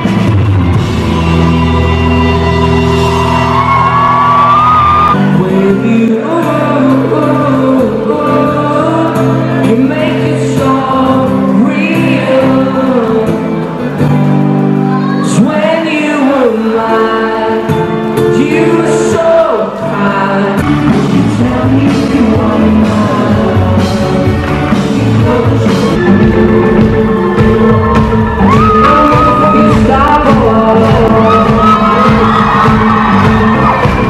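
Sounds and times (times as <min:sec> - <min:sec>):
acoustic guitar: 0:00.0 - 0:34.0
person singing: 0:05.1 - 0:34.0
steady drum beat: 0:20.6 - 0:34.0.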